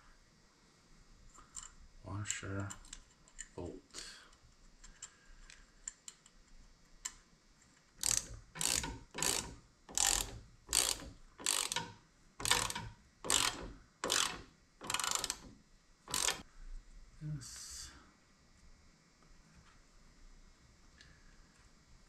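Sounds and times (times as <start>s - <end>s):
ratchet wrench clicking: 8.0s - 15.5s, 16.1s - 16.4s.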